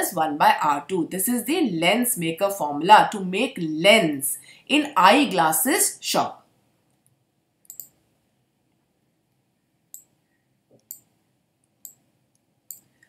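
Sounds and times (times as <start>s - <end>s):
computer mouse clicking: 7.7s - 8.0s, 11.7s - 13.0s.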